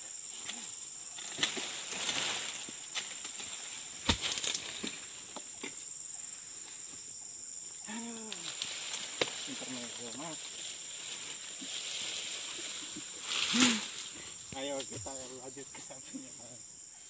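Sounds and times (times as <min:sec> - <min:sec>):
high hum of insects: 0:00.0 - 0:17.0
frond falling with leaf rustle: 0:01.2 - 0:05.1, 0:08.2 - 0:14.8.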